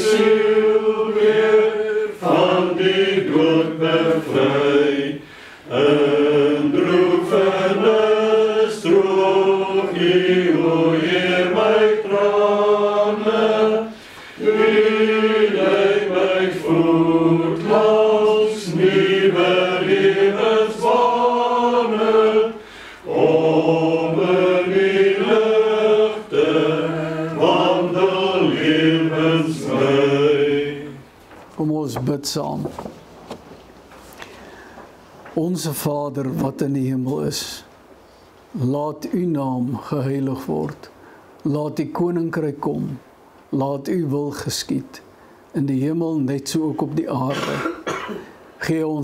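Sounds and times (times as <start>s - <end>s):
congregation singing a psalm: 0.0s - 31.2s.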